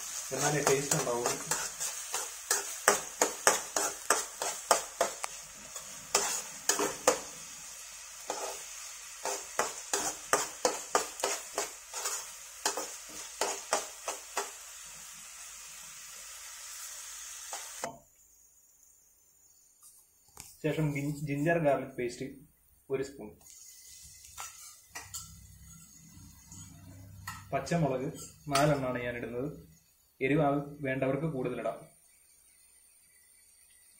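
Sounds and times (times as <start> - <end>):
onions sizzling in oil: 0.0 - 19.8, 23.4 - 33.9
utensil scraping and tapping pan: 0.4 - 5.4, 6.1 - 7.3, 9.2 - 14.5, 24.3 - 25.9, 26.5 - 28.8.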